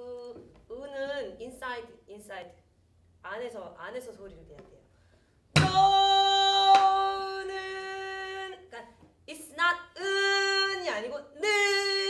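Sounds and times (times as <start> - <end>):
barrel drum strikes: 5.6 - 5.9
woman singing folk song: 5.6 - 8.8.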